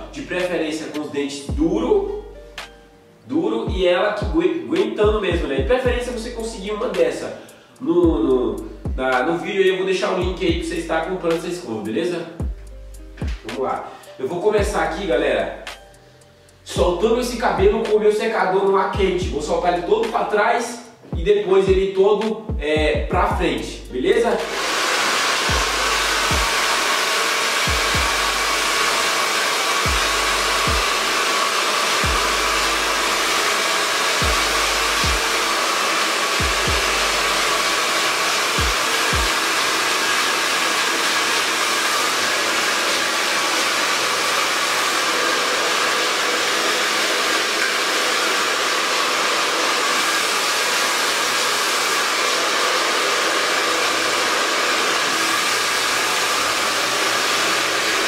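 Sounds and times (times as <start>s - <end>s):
hair dryer blowing: 24.2s - 58.0s.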